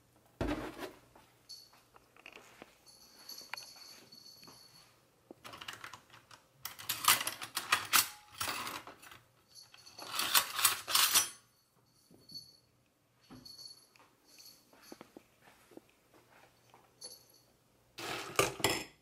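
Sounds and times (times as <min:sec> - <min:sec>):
metal cutlery clattering in rack: 0:05.4 - 0:11.5, 0:18.0 - 0:19.0.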